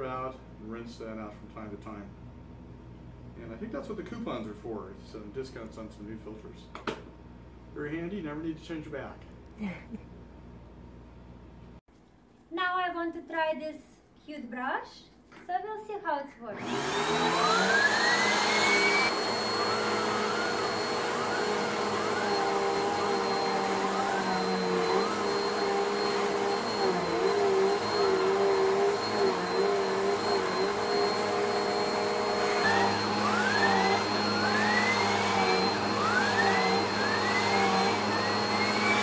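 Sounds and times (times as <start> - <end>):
vacuum cleaner running: 16.5 - 39.0
brush tool whine: 16.6 - 39.0.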